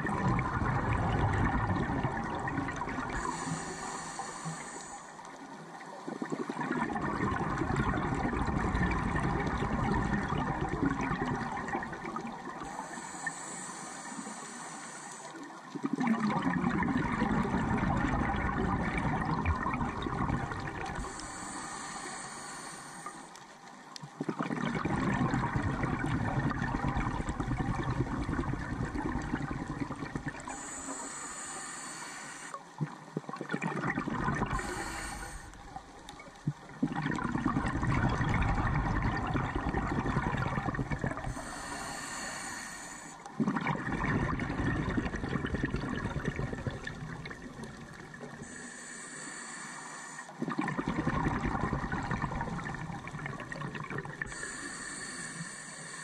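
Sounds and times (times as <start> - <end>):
exhaled bubbles gurgling: 0.0 - 56.0
regulator hissing inhales: 3.2 - 5.2, 12.7 - 15.6, 21.0 - 23.4, 30.4 - 32.7, 34.5 - 35.8, 41.2 - 43.4, 48.4 - 50.4, 54.3 - 56.0.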